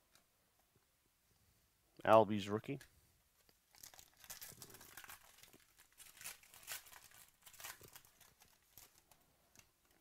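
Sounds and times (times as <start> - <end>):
foil wrapper crinkling and tearing: 3.5 - 9.2.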